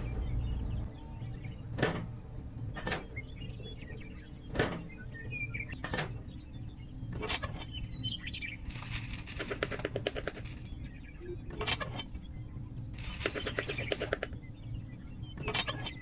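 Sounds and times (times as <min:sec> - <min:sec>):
fast rattle of clicks: 0:08.7 - 0:10.7, 0:13.0 - 0:14.3.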